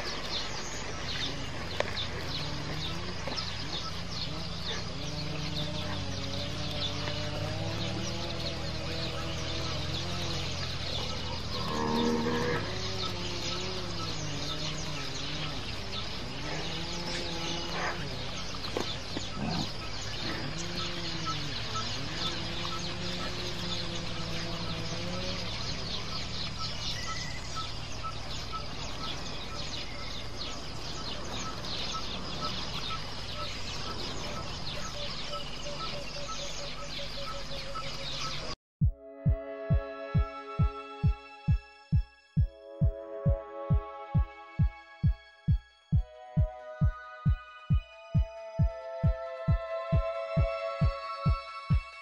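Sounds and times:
steady high hiss: 0.0 - 38.5
faint repeating chirp: 2.4 - 43.8.

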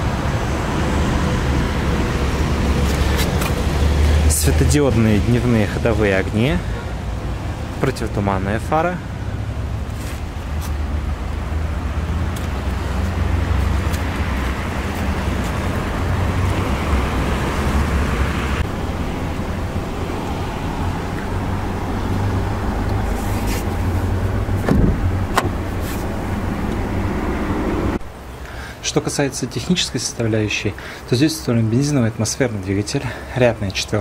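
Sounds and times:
road traffic hum: 0.0 - 34.0
broad rushing sound: 11.6 - 28.2.

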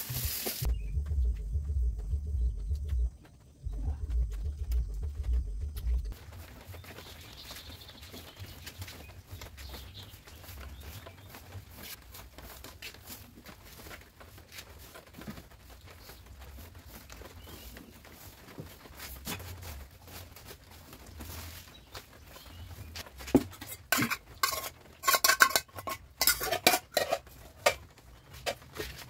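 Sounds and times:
broom sweeping concrete floor: 0.0 - 0.7.

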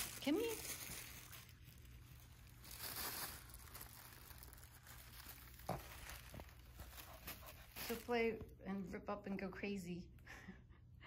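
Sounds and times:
tissue paper rustling: 0.0 - 8.4.

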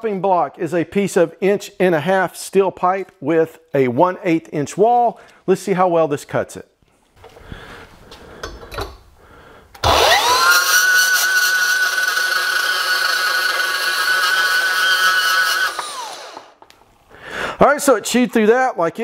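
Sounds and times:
band saw motor whine: 9.8 - 16.6.

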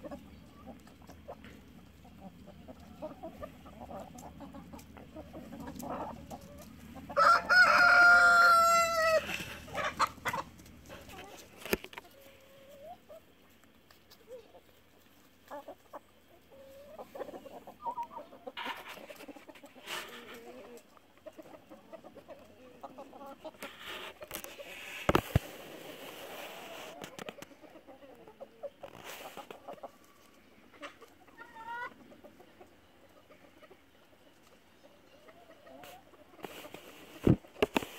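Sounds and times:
hens clucking: 0.0 - 37.9
rooster crowing: 7.1 - 9.4.

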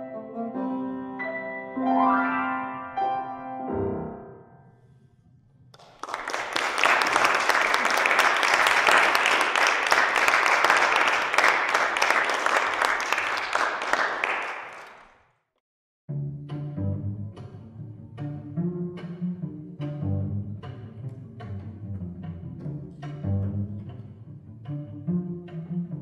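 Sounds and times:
viola and piano chord: 0.0 - 4.5
audience applause: 5.8 - 15.2.

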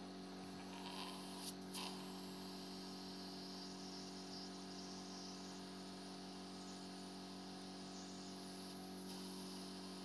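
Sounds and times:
faint electrical hum: 0.0 - 10.0
short hiss: 0.7 - 3.0, 8.6 - 10.0.

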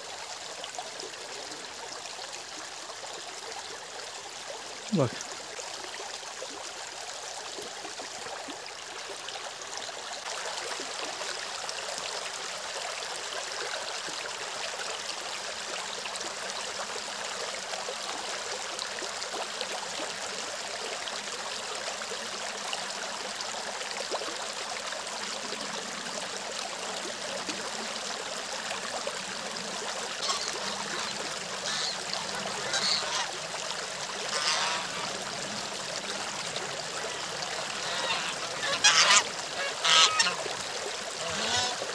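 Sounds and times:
stream running over stones: 0.0 - 41.9
geese honking: 30.2 - 33.4, 34.3 - 35.2, 37.1 - 40.4, 41.2 - 41.9.

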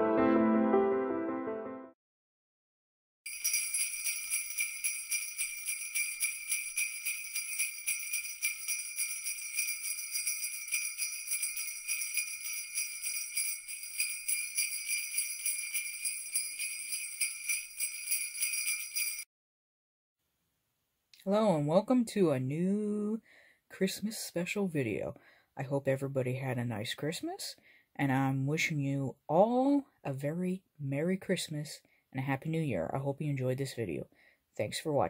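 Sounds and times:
jingle bells shaking: 3.3 - 19.3.

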